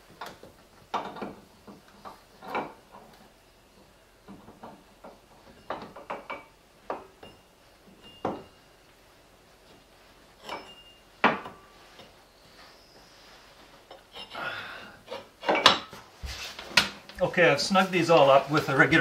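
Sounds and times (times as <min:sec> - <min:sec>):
wrench clinking on bolts: 0:10.4 - 0:11.0.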